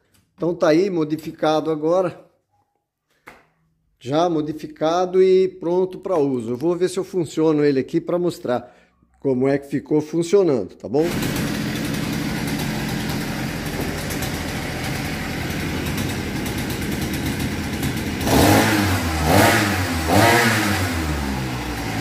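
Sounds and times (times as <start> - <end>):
outboard motor idling and revving: 11.0 - 22.0.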